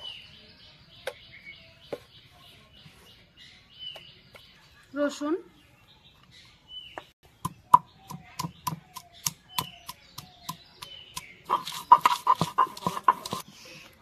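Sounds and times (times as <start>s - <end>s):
stone grinding strokes: 11.5s - 13.4s
stone roller knocking on stone: 11.6s - 13.4s.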